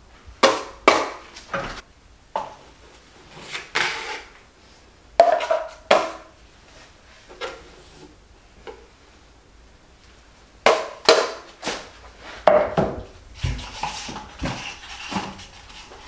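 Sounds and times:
taping knife scraping metal pan: 3.3 - 4.3, 13.4 - 16.0.

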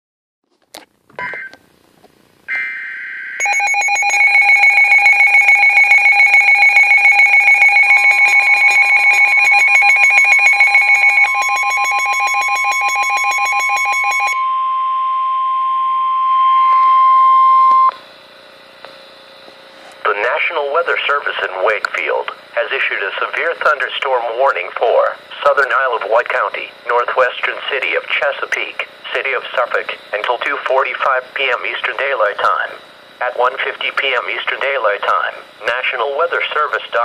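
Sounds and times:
pulsing electronic alarm beeping: 2.5 - 18.0
steady warning tone: 2.5 - 18.0.

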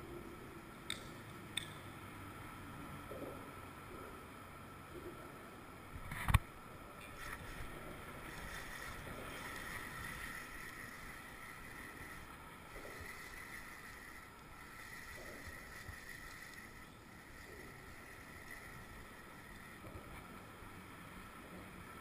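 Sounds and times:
fishing reel whirring: 7.1 - 20.6.

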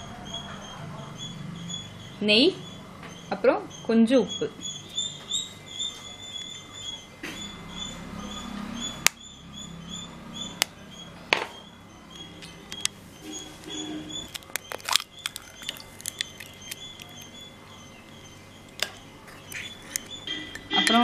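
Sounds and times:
egg tapping and cracking: 14.2 - 17.4, 18.1 - 20.7.

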